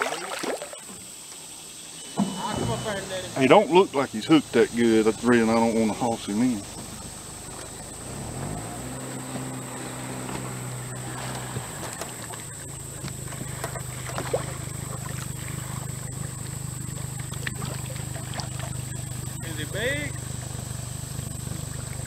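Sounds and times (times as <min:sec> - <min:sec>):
fish splashing in water: 0:00.0 - 0:01.2, 0:10.9 - 0:22.0
boat motor humming: 0:00.8 - 0:22.0.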